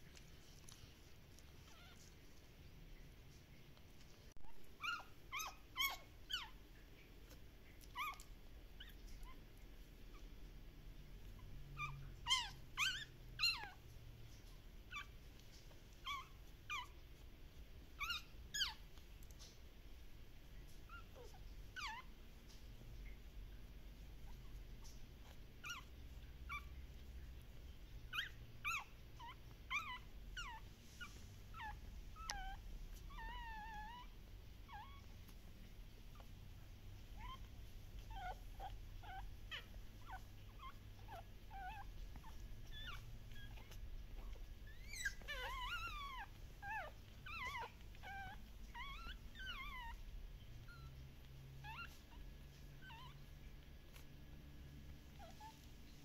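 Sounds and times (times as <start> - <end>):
puppies squeaking and whimpering: 0.1 - 2.2, 4.4 - 9.4, 11.2 - 17.2, 17.8 - 19.6, 20.6 - 23.3, 24.0 - 56.0.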